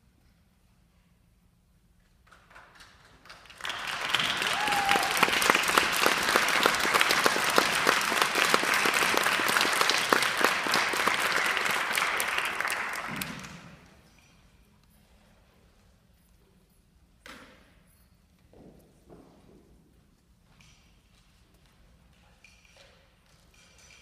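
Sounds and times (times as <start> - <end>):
audience applauding: 3.2 - 13.8.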